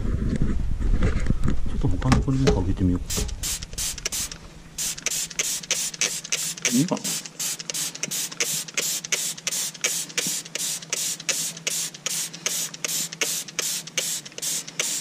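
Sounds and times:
foam spray bottle squeezed: 3.1 - 15.0.

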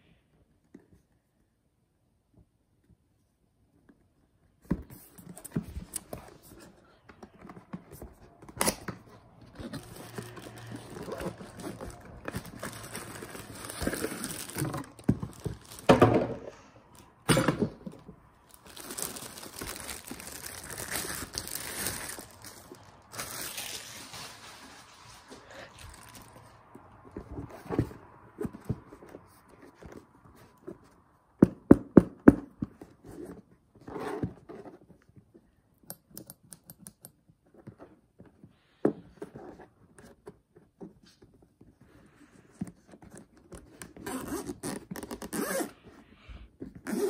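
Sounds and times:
plastic wrapping crinkling: 9.4 - 16.0, 18.4 - 26.6.

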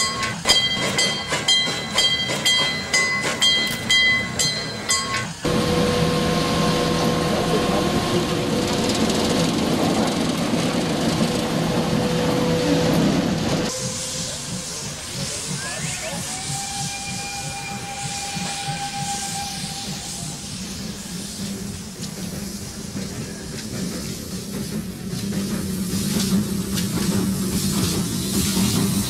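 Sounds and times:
locomotive metallic clanks: 0.0 - 14.0
electric locomotive hum: 0.0 - 29.0
steam hissing: 0.0 - 29.0.

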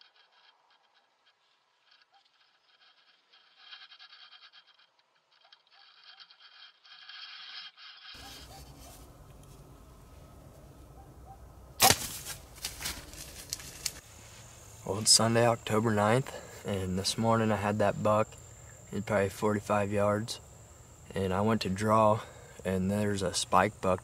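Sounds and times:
scratching and rustling: 0.0 - 10.6, 11.8 - 14.6
loud sharp crack: 11.8 - 13.0.

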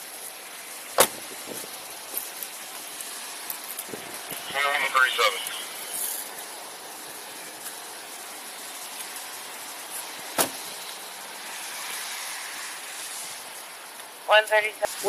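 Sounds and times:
rain hiss: 0.0 - 15.0
traffic on wet road: 0.0 - 15.0.

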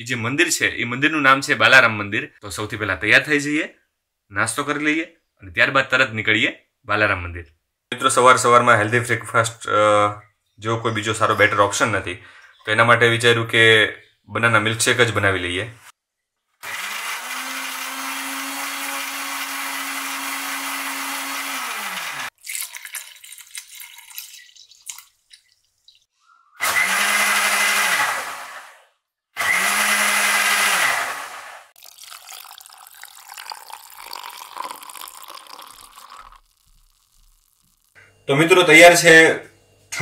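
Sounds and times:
electric blender running: 16.6 - 22.3, 26.6 - 31.8.

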